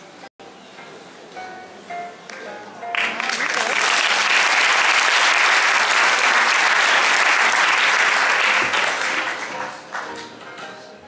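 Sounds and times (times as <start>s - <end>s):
audience applauding: 2.9s - 10.2s.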